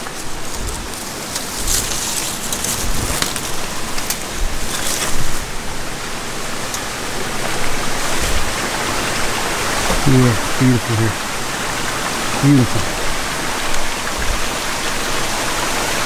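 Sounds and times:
waterfall rushing: 5.8 - 16.0.

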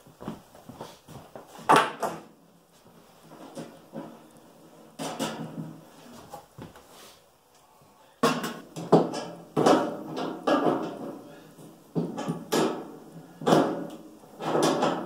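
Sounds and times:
sheet metal knocks and clanks: 3.3 - 5.8, 8.2 - 15.0.

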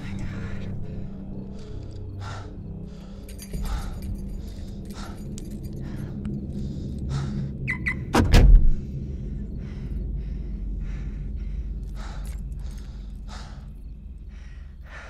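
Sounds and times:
heavy breathing: 0.0 - 7.7, 8.8 - 15.0
low steady drone: 0.0 - 15.0
heavy thud with low boom: 8.1 - 8.8.

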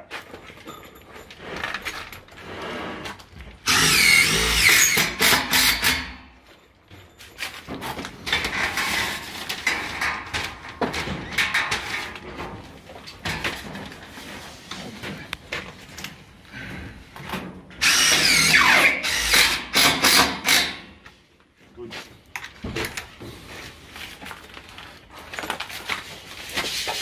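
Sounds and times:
cordless drill driving screw: 3.7 - 6.0, 17.8 - 20.6.

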